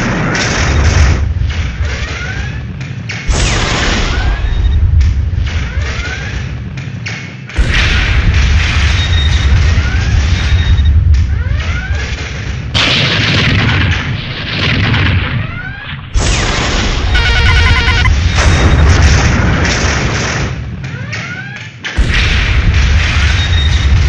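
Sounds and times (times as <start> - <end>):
electronic beeping: 17.1 - 18.1.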